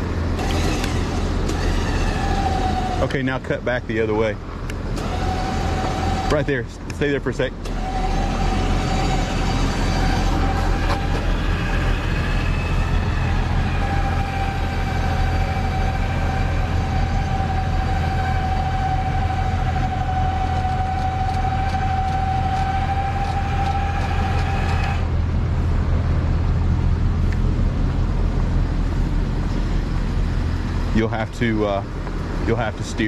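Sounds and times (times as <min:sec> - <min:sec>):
winch whining: 0:00.0 - 0:26.4
engine low drone: 0:00.0 - 0:33.0.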